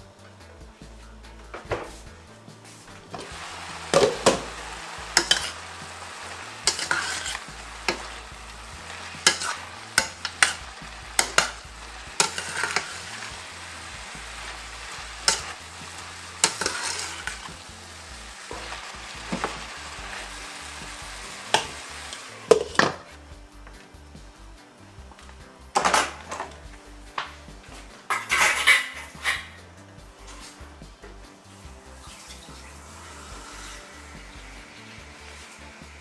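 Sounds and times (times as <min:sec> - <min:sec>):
food sizzling in a pan: 0:01.9 - 0:36.0
spoon clinking and scraping pan: 0:03.1 - 0:23.1, 0:28.0 - 0:29.6.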